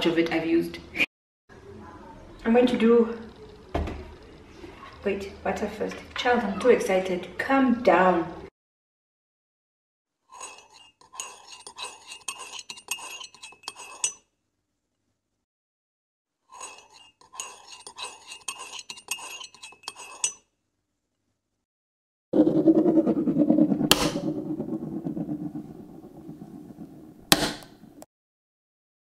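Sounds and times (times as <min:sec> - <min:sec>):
spoon beating eggs in bowl: 0:10.3 - 0:14.2, 0:16.5 - 0:20.5.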